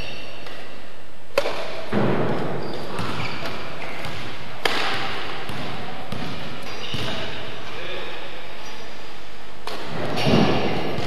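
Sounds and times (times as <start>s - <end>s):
racket striking shuttlecock: 0.1s - 7.4s, 9.6s - 11.0s.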